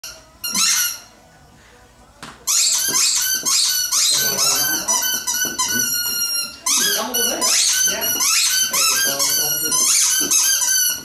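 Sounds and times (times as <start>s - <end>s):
puppy squeaking and whimpering: 2.5s - 11.0s.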